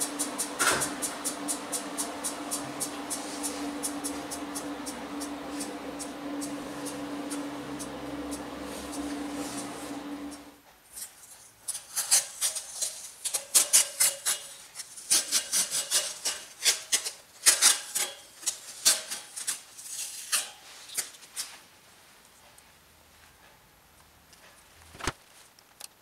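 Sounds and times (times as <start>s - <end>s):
tape rustling and peeling: 10.9s - 21.6s.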